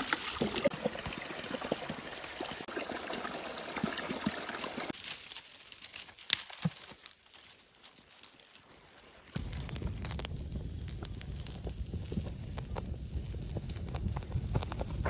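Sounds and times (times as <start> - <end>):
spring water pouring and trickling: 0.0 - 5.7.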